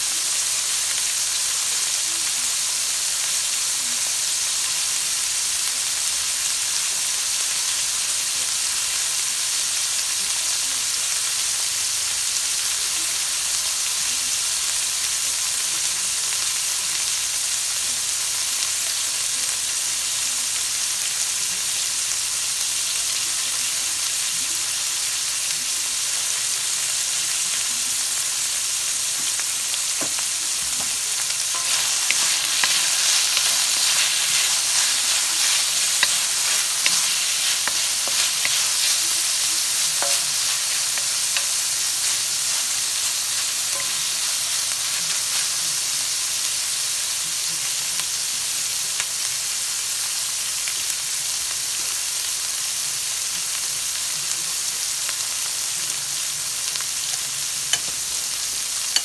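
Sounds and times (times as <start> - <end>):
vegetables sizzling in oil: 0.0 - 59.0
wooden spatula scraping wok: 30.0 - 42.7.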